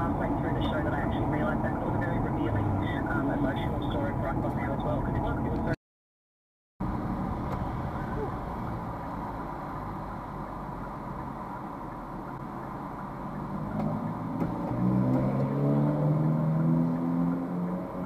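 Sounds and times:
car cabin noise in traffic: 0.0 - 5.8, 6.8 - 18.0
nearby car engine: 6.8 - 18.0.

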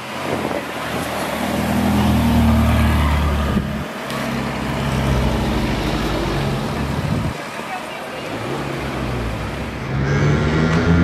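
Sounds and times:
car engine driving past: 8.5 - 11.0.

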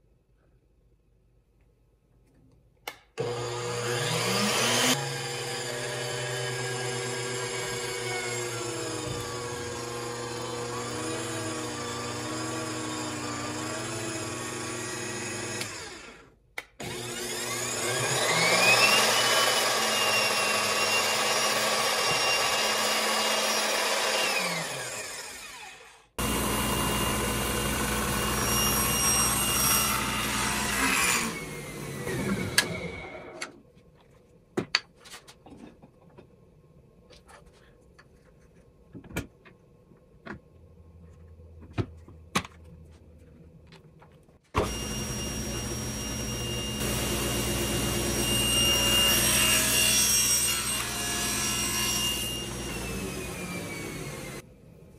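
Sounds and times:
table saw cutting wood: 3.2 - 33.5, 44.6 - 54.4.

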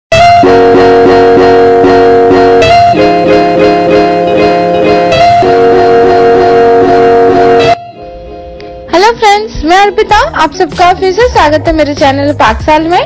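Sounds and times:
plucked notes over held chords: 0.2 - 8.9.

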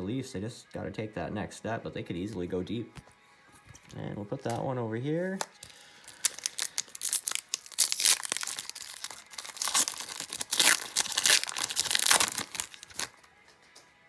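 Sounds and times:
plastic foil wrapper crinkling: 5.3 - 13.3.

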